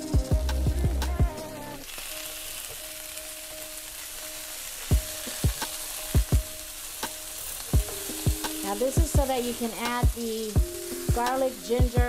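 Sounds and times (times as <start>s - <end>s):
meat sizzling in a frying pan: 1.7s - 12.0s.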